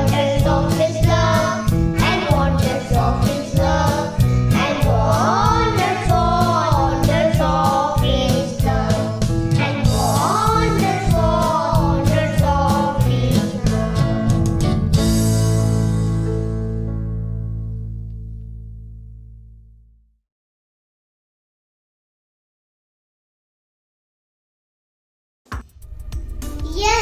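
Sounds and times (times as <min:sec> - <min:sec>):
children singing together: 0:00.0 - 0:14.5.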